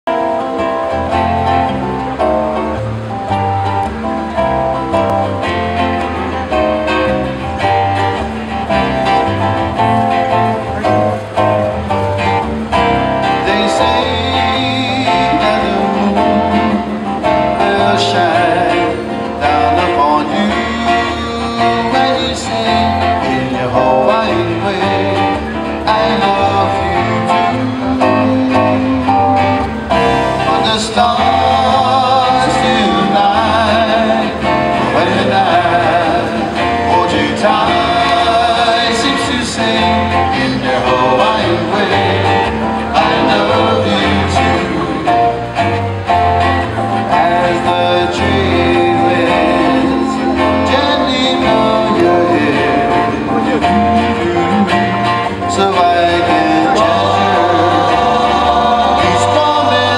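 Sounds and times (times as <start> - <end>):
bass guitar: 0.0 - 59.9
strummed acoustic guitar: 0.1 - 59.9
ukulele: 0.1 - 59.9
person singing: 12.2 - 59.9.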